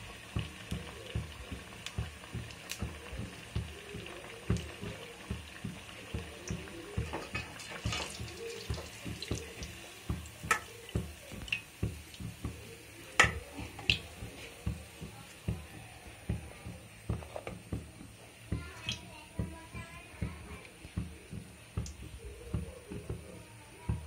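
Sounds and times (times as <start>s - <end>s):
food sizzling in hot oil: 0.0s - 24.0s
low regular thudding: 8.2s - 24.0s.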